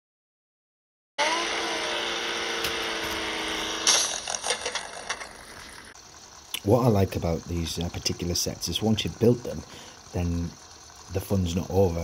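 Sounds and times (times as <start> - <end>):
toy car motor whirring: 1.2 - 6.0.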